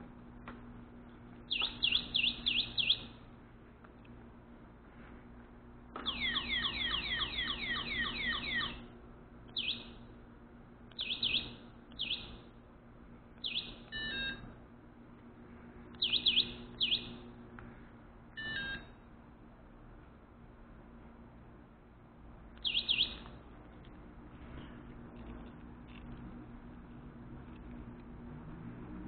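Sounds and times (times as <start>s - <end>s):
alarm unit chirping: 1.4s - 3.3s, 6.0s - 8.9s, 9.5s - 10.1s, 10.9s - 12.6s, 13.4s - 14.6s, 15.9s - 17.4s, 18.3s - 19.1s, 22.6s - 23.5s.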